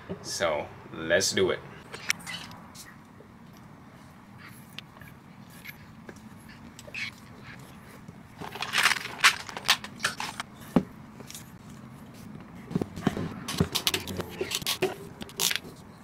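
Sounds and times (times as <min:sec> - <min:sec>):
tools scraping: 0:04.5 - 0:16.0.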